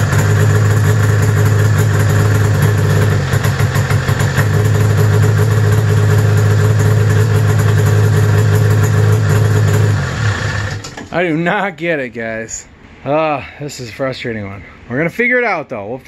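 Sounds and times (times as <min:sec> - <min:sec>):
snowmobile engine idling: 0:00.0 - 0:10.9.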